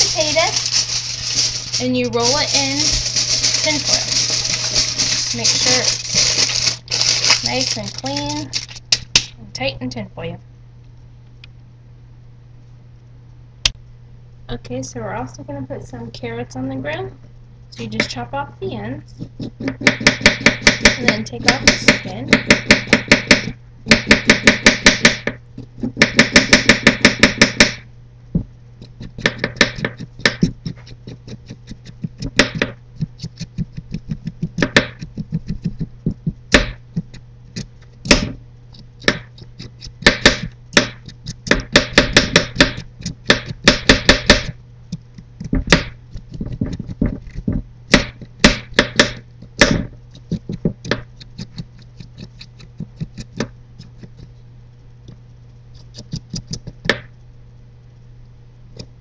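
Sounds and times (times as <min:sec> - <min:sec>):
low hum: 0:27.0 - 0:59.0
carrot peeling scrapes: 0:29.8 - 0:32.4, 0:50.0 - 0:54.3.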